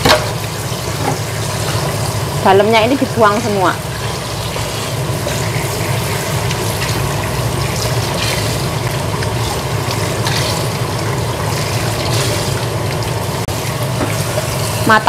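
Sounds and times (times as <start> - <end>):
tap running into sink: 14.0 - 14.2.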